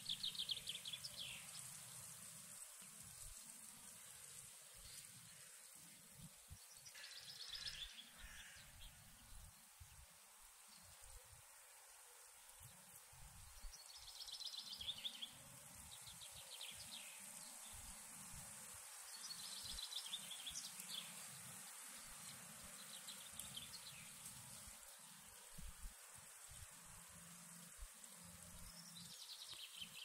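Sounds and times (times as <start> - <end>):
steady high hiss: 0.0 - 30.0
faint songbird trills: 6.5 - 9.7, 13.5 - 18.0.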